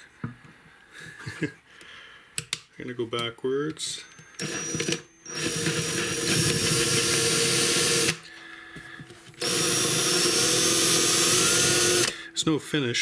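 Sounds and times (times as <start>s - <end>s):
power drill whining: 3.8s - 8.3s, 9.3s - 12.2s.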